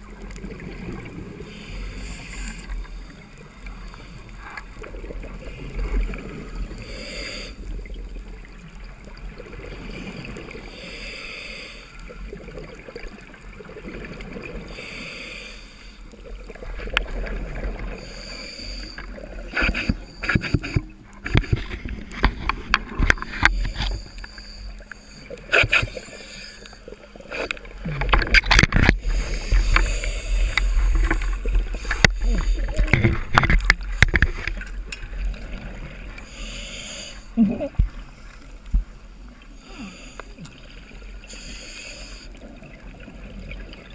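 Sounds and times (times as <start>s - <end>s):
soft hiss: 14.2s - 21.2s, 33.7s - 43.8s.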